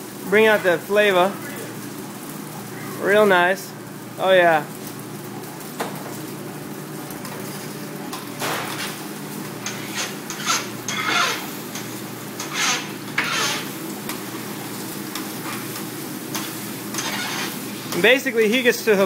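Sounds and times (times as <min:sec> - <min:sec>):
metal spatulas scraping griddle: 0:09.6 - 0:11.6, 0:12.4 - 0:13.8, 0:16.3 - 0:17.6.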